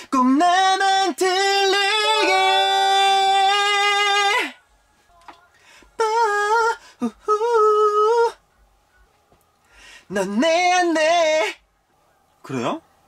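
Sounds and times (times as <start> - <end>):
man singing a cappella: 0.0 - 8.4, 10.0 - 11.6.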